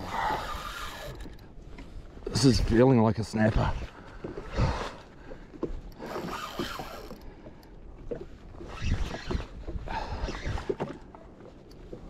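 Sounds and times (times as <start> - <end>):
fishing reel clicking and whirring: 0.0 - 1.5, 5.9 - 7.8.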